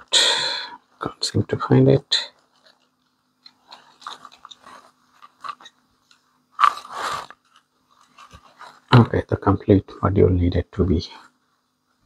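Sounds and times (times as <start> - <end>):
crunching plastic rattle: 2.4 - 5.8.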